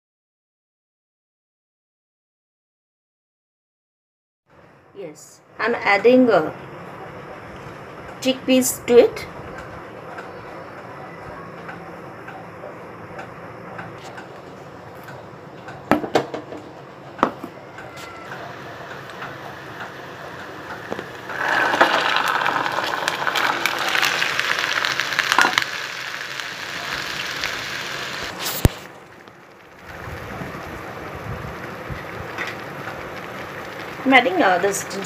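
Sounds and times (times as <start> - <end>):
oil sizzling in a pan: 18.0 - 35.0.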